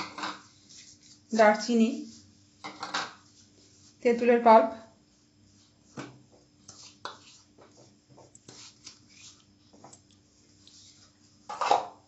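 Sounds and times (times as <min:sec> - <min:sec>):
spices scraped from plastic bowl: 0:06.6 - 0:09.6.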